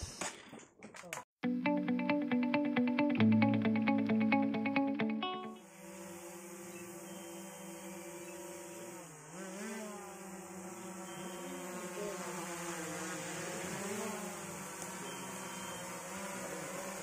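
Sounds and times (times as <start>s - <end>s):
drone propellers buzzing: 5.6s - 17.0s.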